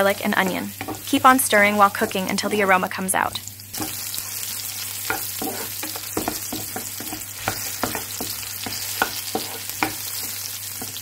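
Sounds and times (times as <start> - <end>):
onion and garlic sizzling in oil: 0.0 - 11.0
wooden spatula scraping pan: 5.1 - 11.0.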